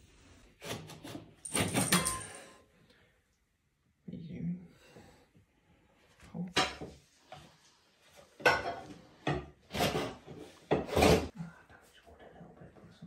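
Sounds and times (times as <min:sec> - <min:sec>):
metal bar scraping skirting board: 0:09.6 - 0:11.3.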